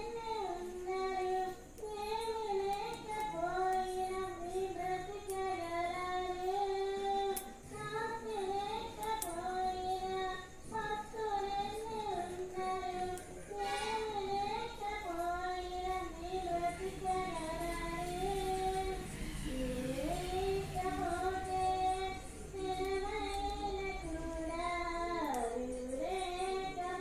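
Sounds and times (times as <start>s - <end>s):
high-pitched voice singing: 10.6s - 27.0s.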